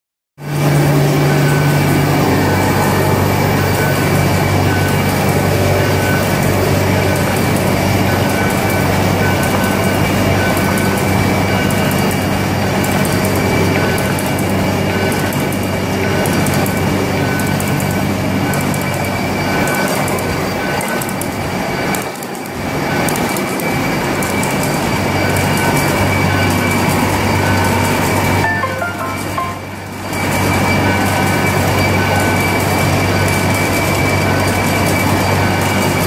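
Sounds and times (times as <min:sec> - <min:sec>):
high whine: 0:00.4 - 0:11.6, 0:28.4 - 0:30.4
higher tone: 0:28.4 - 0:30.1.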